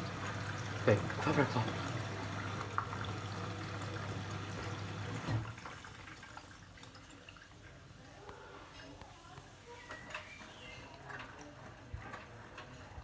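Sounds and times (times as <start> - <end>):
washing machine motor hum: 0.0 - 6.1.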